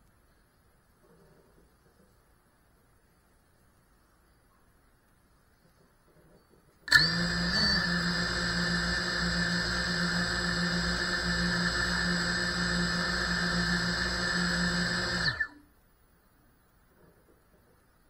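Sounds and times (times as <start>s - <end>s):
drone motors whining at idle: 6.9s - 15.6s.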